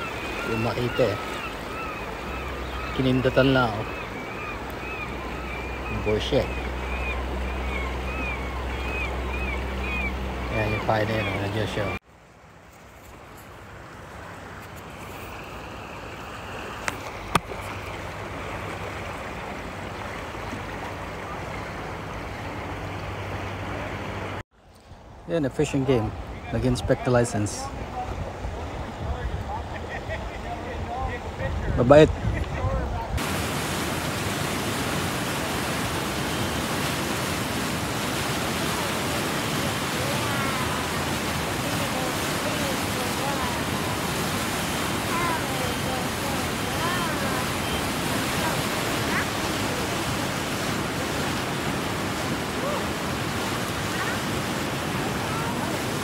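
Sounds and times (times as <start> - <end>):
water rushing over rocks: 0.0 - 12.0, 33.2 - 56.0.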